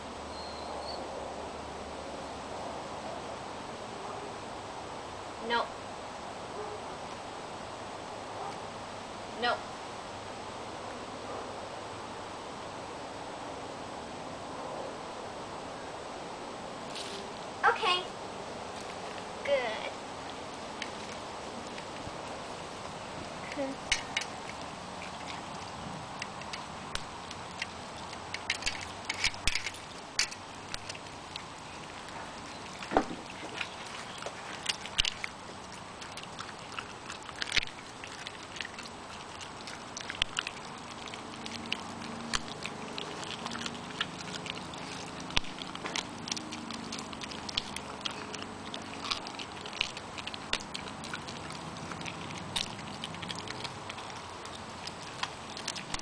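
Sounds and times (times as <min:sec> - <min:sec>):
puppy chewing bones: 0:18.6 - 0:56.0.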